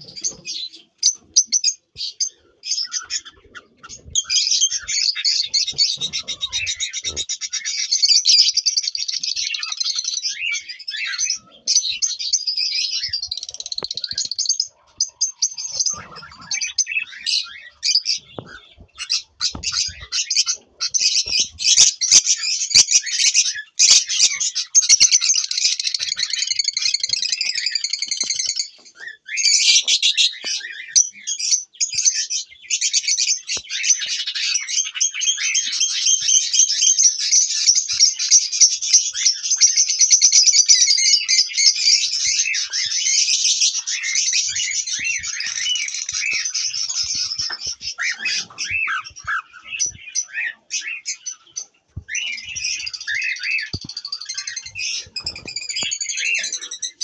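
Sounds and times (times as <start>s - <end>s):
budgerigars chattering: 0.0s - 57.0s.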